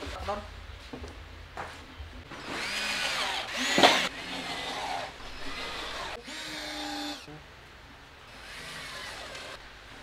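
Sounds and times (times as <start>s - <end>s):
electric drill motor whirring: 2.4s - 7.3s, 8.3s - 9.6s.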